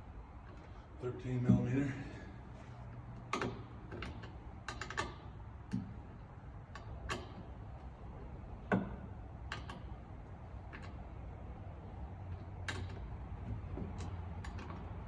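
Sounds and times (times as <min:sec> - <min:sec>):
wrench clicking on bolt: 0:03.3 - 0:05.9, 0:06.7 - 0:07.5, 0:08.7 - 0:10.0, 0:12.3 - 0:13.1.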